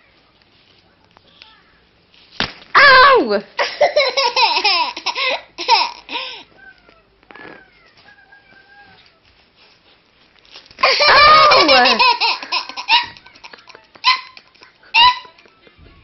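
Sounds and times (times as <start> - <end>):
toddler laughing: 3.6 - 6.4, 10.8 - 15.4.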